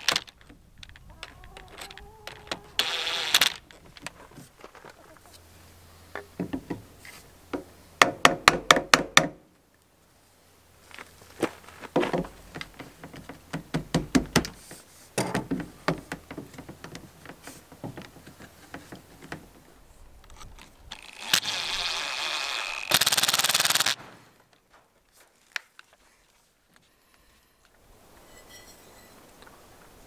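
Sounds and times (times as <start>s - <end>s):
cordless driver driving screw: 2.4s - 3.7s, 20.3s - 24.0s.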